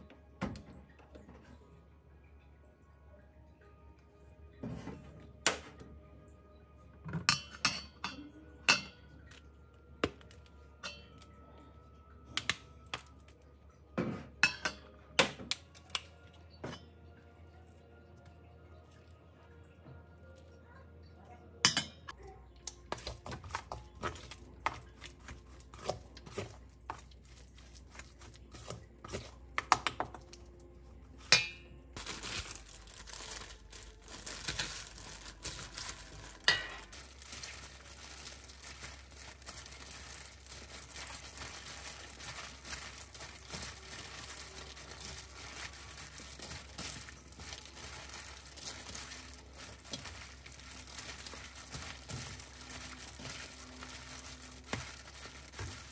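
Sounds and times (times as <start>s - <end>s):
plastic gloves rustling: 22.2s - 55.9s.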